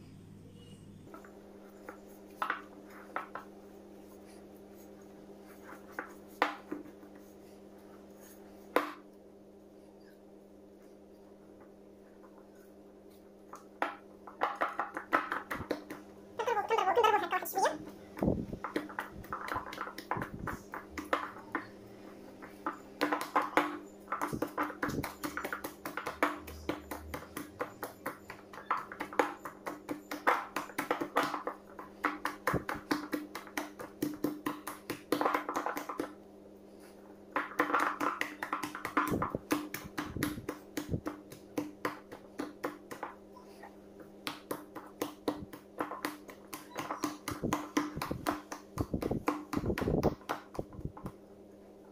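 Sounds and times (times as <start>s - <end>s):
dough slapping and squelching: 13.5s - 21.7s, 22.4s - 36.2s, 36.8s - 51.3s.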